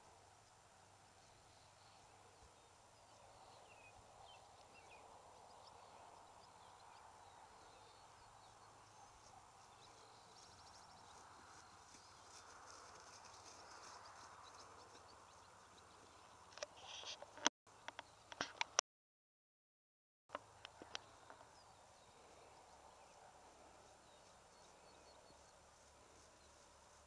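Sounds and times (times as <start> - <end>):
horse hoofbeats on grass: 8.8 - 16.1.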